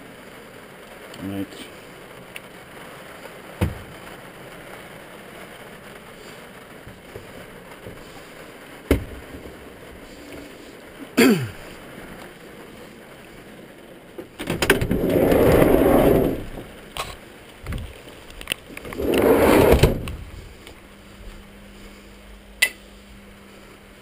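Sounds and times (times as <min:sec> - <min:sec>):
rushing rumble: 0:03.7 - 0:24.0.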